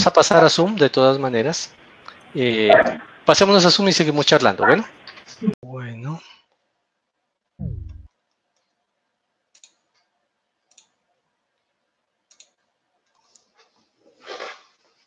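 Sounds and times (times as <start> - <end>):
falling tone: 7.6 - 8.1
soft mouse clicks: 7.9 - 8.8, 9.5 - 11.0, 12.3 - 13.6.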